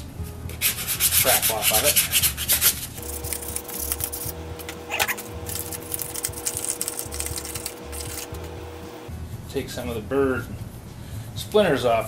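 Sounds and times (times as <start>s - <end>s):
sandpaper scratching on wood: 0.6s - 8.5s
steady low hum: 2.9s - 9.6s.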